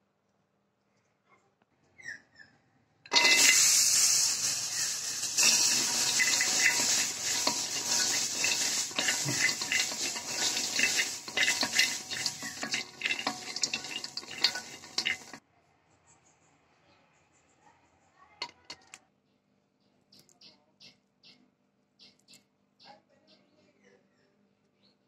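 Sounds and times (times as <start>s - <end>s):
spatula stirring nuts in a pan: 3.1s - 15.4s
steady hiss: 3.1s - 15.4s.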